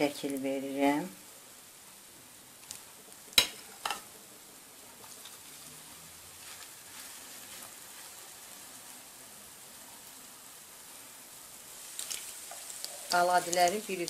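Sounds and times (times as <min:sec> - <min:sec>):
oil sizzling in a frying pan: 0:00.0 - 0:14.0
spoon scraping in pan: 0:06.3 - 0:08.7, 0:11.8 - 0:13.8.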